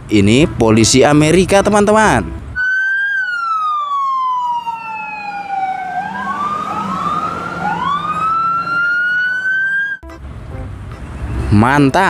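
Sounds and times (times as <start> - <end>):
police siren wailing: 2.6 - 10.0.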